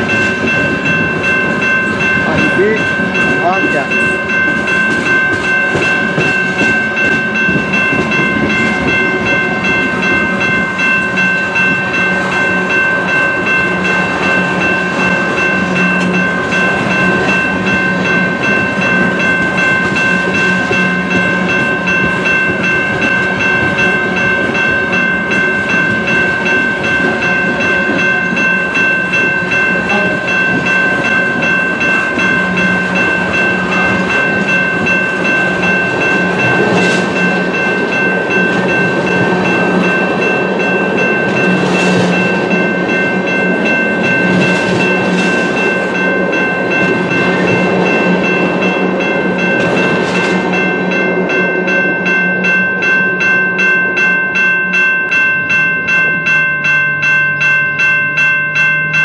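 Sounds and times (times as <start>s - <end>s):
train wheels clattering: 0.0s - 53.3s.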